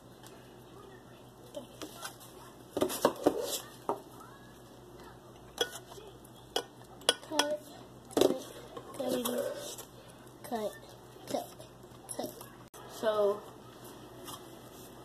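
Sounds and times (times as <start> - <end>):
metal spoon clinking on bowl: 5.6 - 5.9, 6.5 - 7.6.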